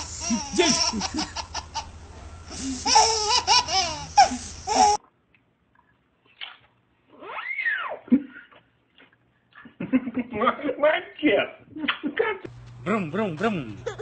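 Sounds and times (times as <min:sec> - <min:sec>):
baby giggling: 0:00.0 - 0:02.0, 0:02.6 - 0:05.0, 0:13.8 - 0:14.0.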